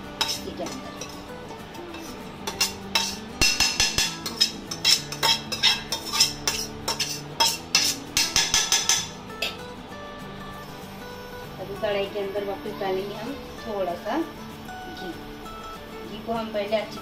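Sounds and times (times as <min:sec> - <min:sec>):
metal spoon scraping a pan: 0:00.0 - 0:09.6.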